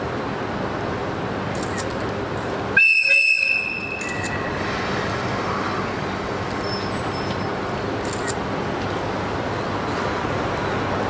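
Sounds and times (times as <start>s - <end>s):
locomotive whistle blast: 2.8s - 4.2s.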